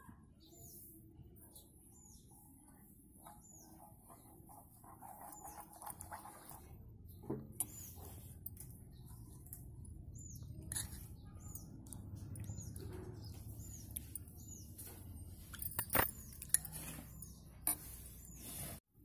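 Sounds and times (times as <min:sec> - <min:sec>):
spoon stirring slurry in glass bowl: 0:03.2 - 0:06.9, 0:07.6 - 0:18.8.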